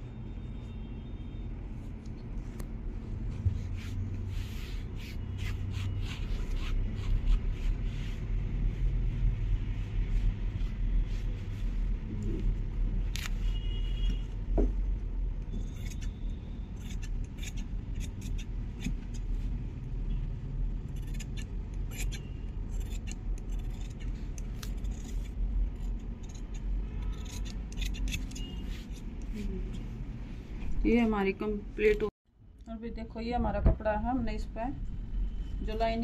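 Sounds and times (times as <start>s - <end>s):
steady low hum: 0.0s - 36.0s
shears snipping cloth: 3.7s - 8.2s.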